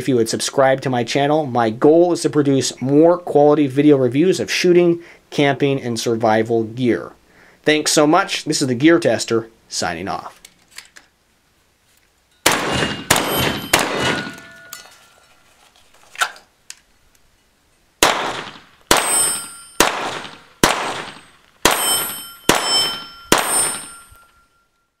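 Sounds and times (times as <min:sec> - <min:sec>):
pistol shots: 0:12.4 - 0:14.7, 0:18.0 - 0:24.1
steel plate clanging and ringing: 0:12.4 - 0:15.4, 0:19.0 - 0:24.9.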